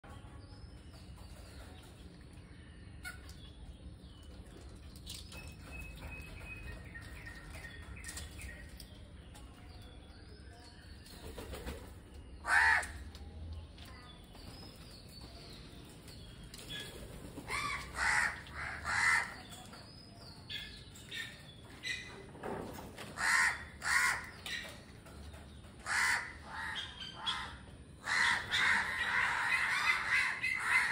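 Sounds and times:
small birds chirping: 0.0s - 30.9s
crow cawing: 12.4s - 13.0s, 17.5s - 19.4s, 23.2s - 24.3s, 25.8s - 30.9s.

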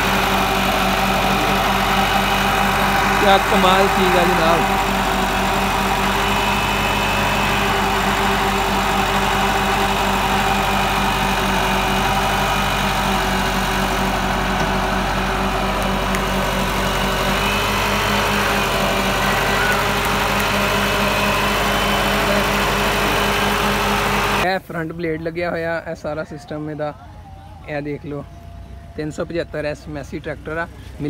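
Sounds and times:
backhoe hydraulics digging: 0.0s - 24.4s
tractor diesel engine running: 0.0s - 31.0s.

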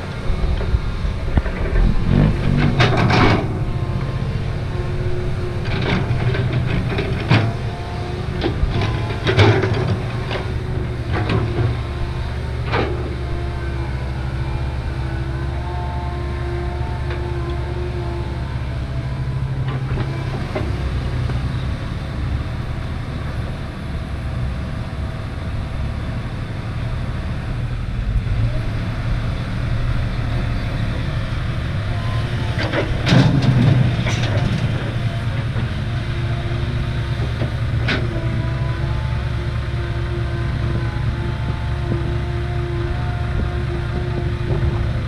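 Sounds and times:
diesel engines running: 0.0s - 45.0s
metal clanking and knocking: 0.3s - 13.7s, 32.5s - 35.9s.

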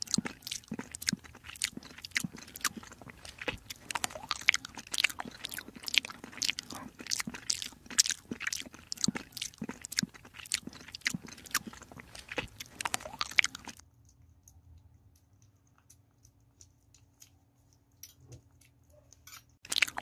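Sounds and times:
kitten chewing wet food: 0.0s - 20.0s.

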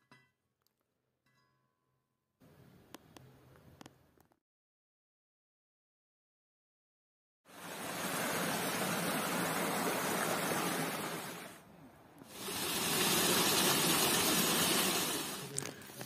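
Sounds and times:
stream rushing over rocks: 7.5s - 11.6s, 12.3s - 16.0s.

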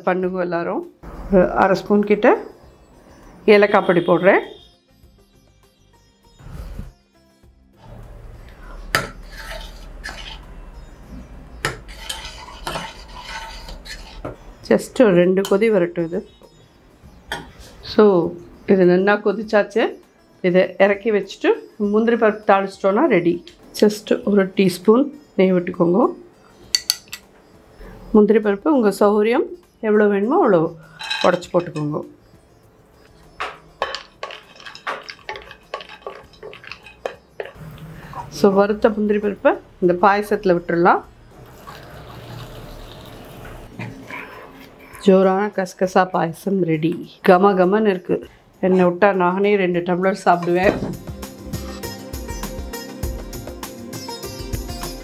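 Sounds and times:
spoon scraping a pot: 9.0s - 10.6s, 11.6s - 14.4s, 30.9s - 32.0s, 33.2s - 38.5s
spoon clinking against pot: 26.6s - 27.3s, 30.9s - 32.0s, 33.4s - 37.6s.

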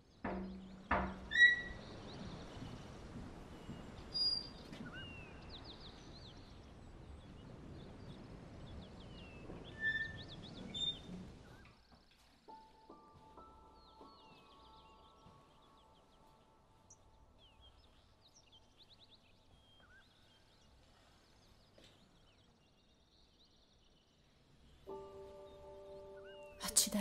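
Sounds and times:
birds chirping and calling: 0.3s - 2.8s
sustained music tone: 24.9s - 27.0s.

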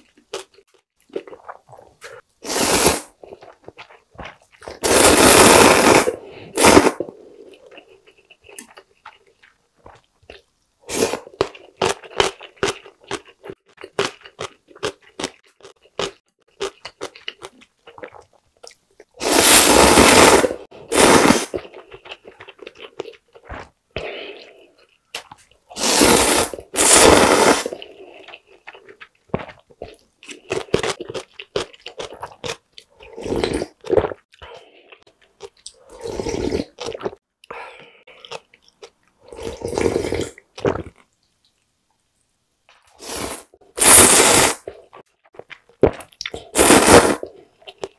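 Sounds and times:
wet chewing of noodles: 0.0s - 41.7s, 42.7s - 47.9s
slurping noodles in broth: 1.4s - 3.7s, 4.7s - 7.8s, 19.2s - 21.7s, 25.7s - 28.4s, 33.0s - 35.0s, 35.7s - 37.2s, 39.2s - 40.4s, 43.0s - 45.0s, 46.4s - 47.4s.

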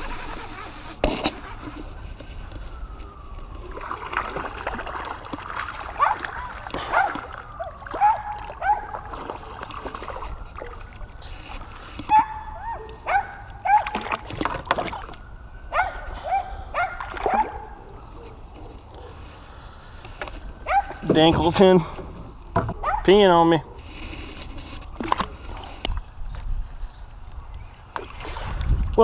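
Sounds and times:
light water splashing: 3.6s - 11.2s.

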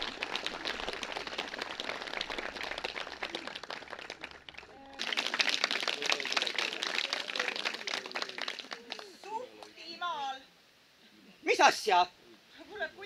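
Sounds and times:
hands clapping: 0.0s - 9.8s
voices: 4.7s - 13.0s.

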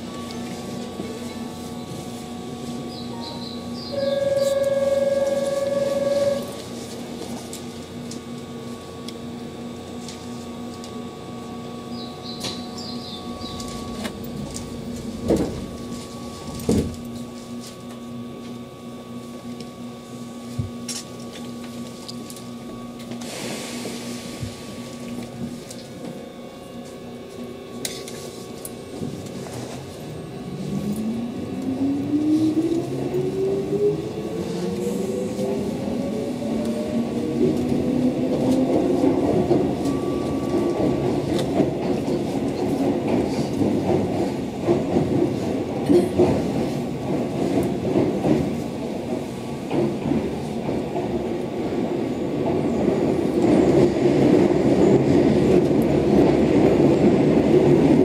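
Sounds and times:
traction motors whining: 0.0s - 20.2s, 24.6s - 43.6s
electric train humming: 0.0s - 58.0s.

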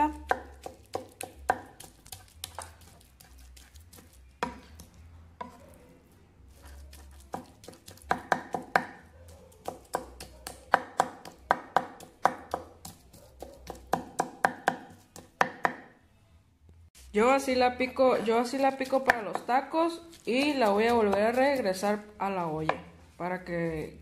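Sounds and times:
knife chopping on wooden board: 0.1s - 5.7s, 6.8s - 9.0s, 9.6s - 15.9s.

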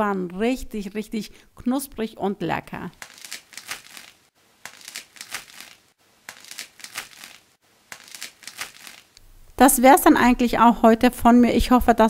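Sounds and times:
bread crust crackling: 3.0s - 9.2s.

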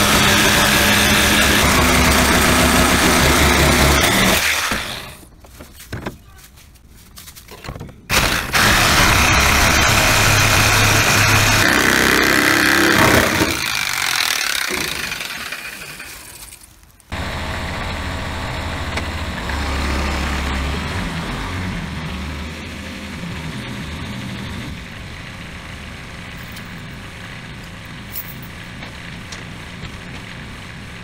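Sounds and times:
power tool on sheet metal: 0.0s - 5.2s, 8.1s - 16.4s.

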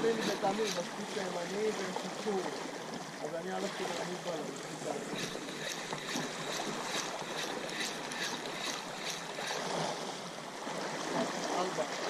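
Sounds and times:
fishing reel ticking: 0.0s - 1.8s, 4.8s - 10.0s
water washing against rocks: 0.0s - 2.6s, 3.8s - 12.0s.

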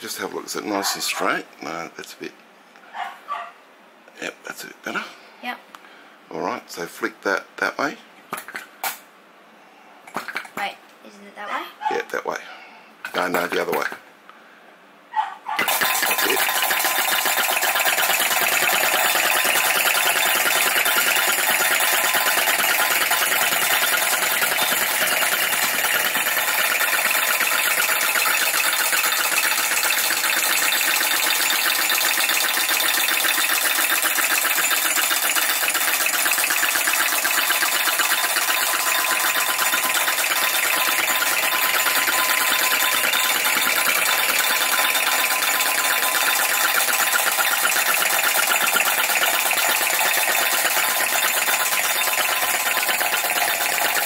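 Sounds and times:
model engine mechanical clatter: 15.6s - 54.0s.

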